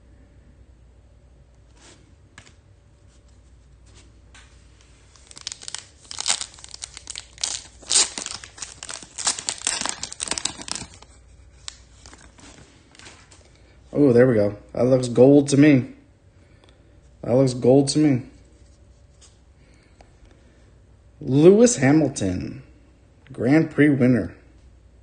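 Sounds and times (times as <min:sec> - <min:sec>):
foil wrapper tearing and crinkling: 0:05.1 - 0:13.3.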